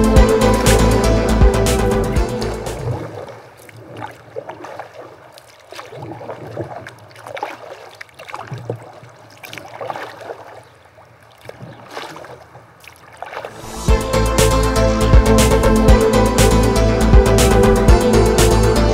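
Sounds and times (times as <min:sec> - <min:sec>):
paddle strokes splashing in water: 0:02.7 - 0:13.9.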